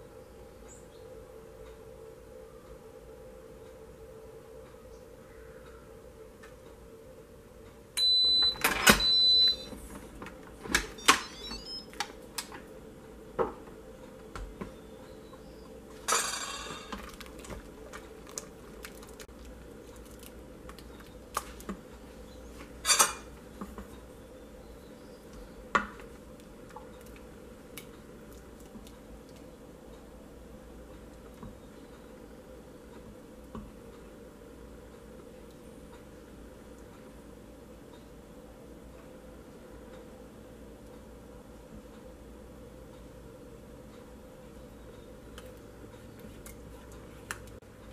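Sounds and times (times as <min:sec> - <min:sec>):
electronic beep: 0:08.0 - 0:09.7, 0:10.9 - 0:12.0.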